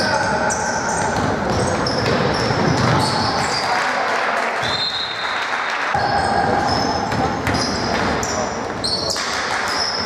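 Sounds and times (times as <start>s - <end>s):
sneakers squeaking: 0.0s - 3.7s, 6.0s - 10.0s
echoing voices: 0.0s - 4.8s
ball bouncing on wooden court: 1.0s - 3.6s, 6.0s - 8.4s.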